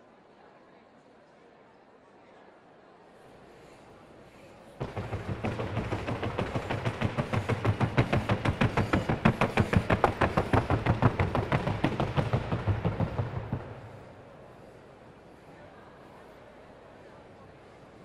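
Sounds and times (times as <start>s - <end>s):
hoofbeats on wooden board: 4.8s - 14.0s.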